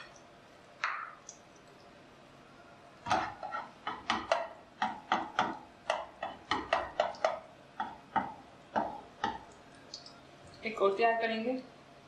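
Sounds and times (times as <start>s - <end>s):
hot oil popping in frying pan: 3.0s - 10.7s.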